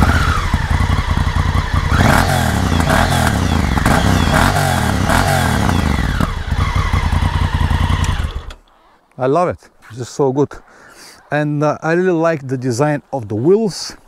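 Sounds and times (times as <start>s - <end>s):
motorcycle engine idling: 0.0s - 8.6s
motorcycle engine revving: 0.0s - 8.6s.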